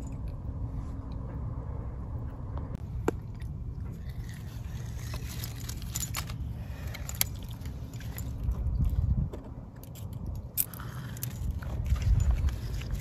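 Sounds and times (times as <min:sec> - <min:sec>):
wind rumble on microphone: 0:03.6 - 0:13.0.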